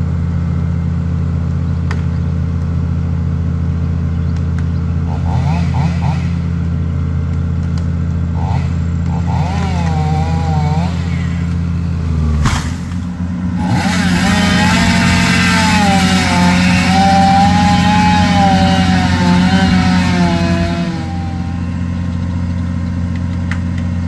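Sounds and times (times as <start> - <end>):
excavator diesel engine whining: 3.1 - 24.0
chainsaw cutting tree: 5.0 - 24.0.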